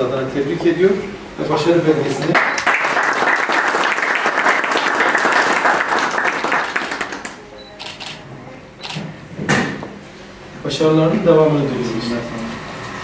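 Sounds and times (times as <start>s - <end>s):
small group applauding: 2.2s - 7.4s.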